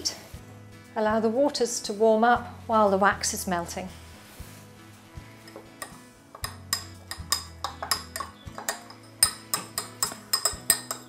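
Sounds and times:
metal spoon clinking against glass: 5.5 - 11.0.

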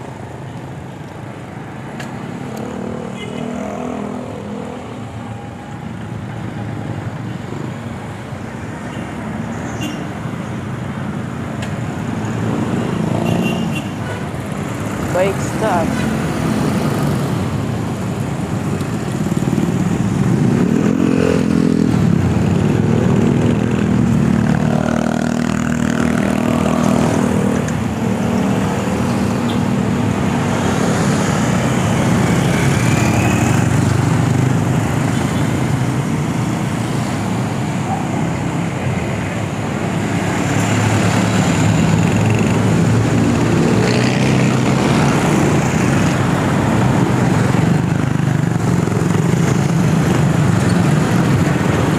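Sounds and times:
low traffic rumble: 0.0 - 51.9
motorcycles passing: 0.0 - 51.9.

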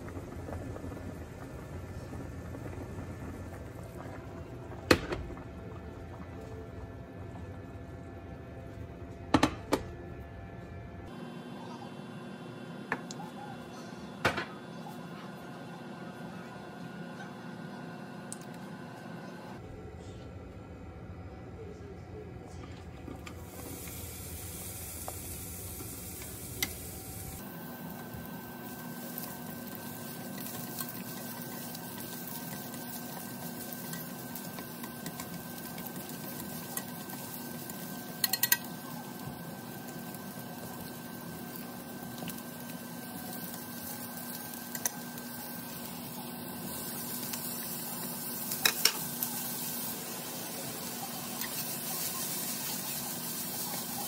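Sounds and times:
food sizzling in a frying pan: 23.4 - 54.0.

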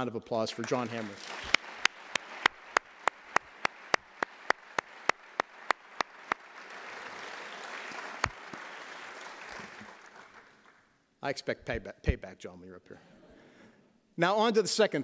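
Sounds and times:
close hand claps: 0.5 - 10.9
audience applauding: 0.6 - 10.8.

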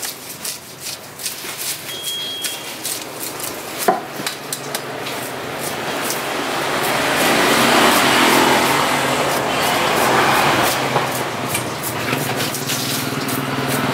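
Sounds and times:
knife scraping fish scales: 0.0 - 3.9, 4.5 - 13.9
steady rushing noise: 4.8 - 12.6.

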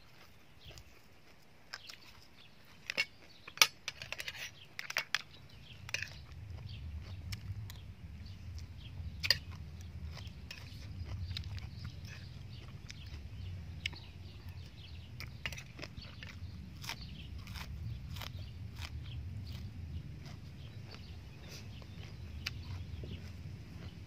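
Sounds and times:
person chewing food: 0.0 - 24.0
low rumble: 5.3 - 24.0.

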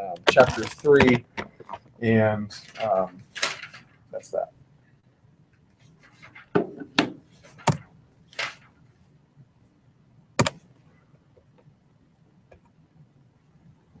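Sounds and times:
knocks and clicks at a desk: 6.5 - 7.9.

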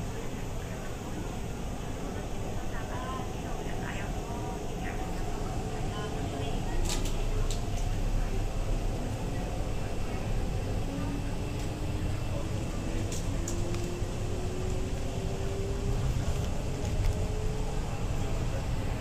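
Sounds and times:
train interior rumble: 0.0 - 19.0.

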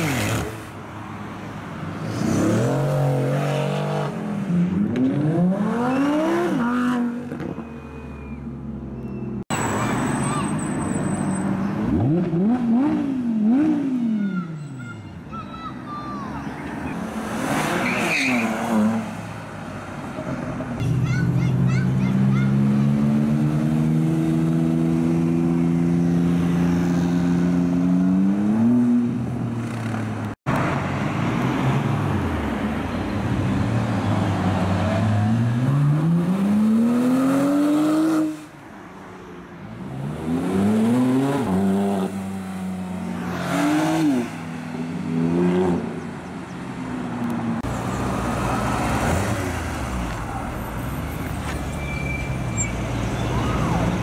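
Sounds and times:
sports cars accelerating: 22.4 - 38.5, 39.7 - 52.0.

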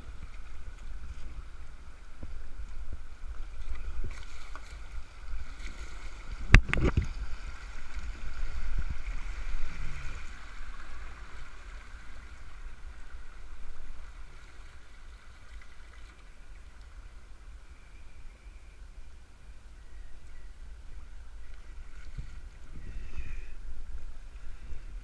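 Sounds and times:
water rushing over rocks: 0.0 - 16.5
low rumble on microphone: 0.0 - 25.0.

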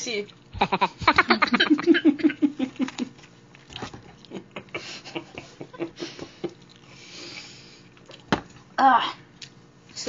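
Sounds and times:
woman laughing: 0.6 - 3.2, 4.2 - 6.6
chewing and lip smacks: 2.8 - 4.8, 6.4 - 7.0, 7.9 - 8.3.

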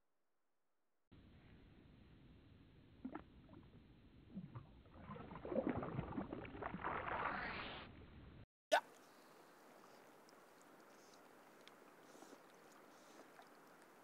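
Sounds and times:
water splashing and lapping: 4.3 - 7.9, 9.7 - 14.0.

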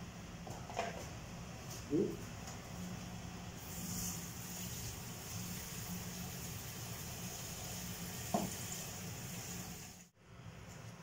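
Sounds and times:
kitchen tap running: 3.6 - 10.1.

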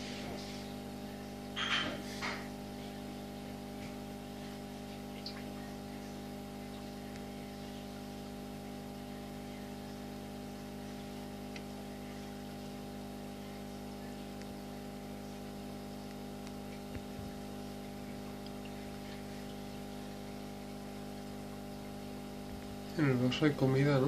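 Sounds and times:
aquarium pump humming: 0.0 - 24.0.

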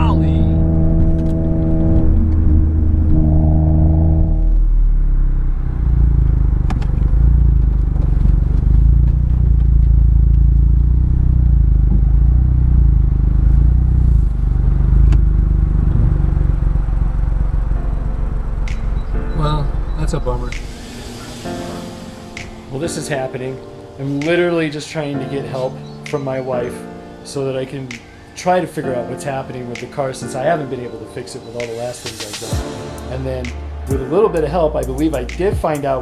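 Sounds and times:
heavy low rumble: 0.0 - 23.5
car engine and road drone: 0.0 - 23.9.

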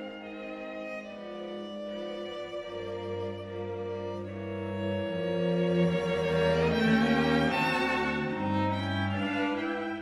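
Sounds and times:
bowed strings holding notes: 0.0 - 10.0.

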